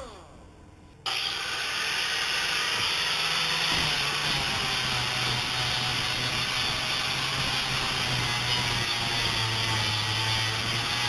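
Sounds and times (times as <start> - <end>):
angle grinder sanding: 1.1 - 11.0.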